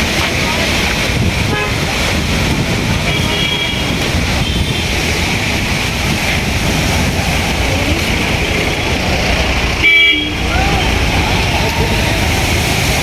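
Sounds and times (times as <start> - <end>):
street traffic: 0.0 - 13.0
wind rumbling on microphone: 0.0 - 13.0
vehicle horn toot: 9.8 - 10.5.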